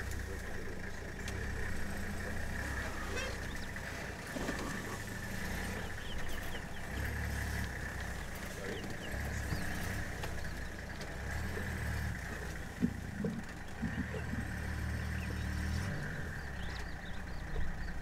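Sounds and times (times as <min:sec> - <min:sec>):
vehicle engine idling: 0:00.0 - 0:18.0
faint bird chirps: 0:01.4 - 0:03.9, 0:04.5 - 0:07.3, 0:07.9 - 0:12.7, 0:13.8 - 0:18.0.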